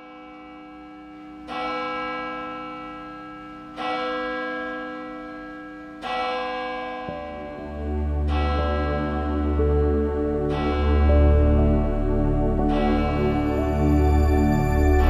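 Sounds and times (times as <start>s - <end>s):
large bell ringing: 0.0s - 15.0s
steady held tone: 7.0s - 15.0s
deep low drone: 7.4s - 15.0s.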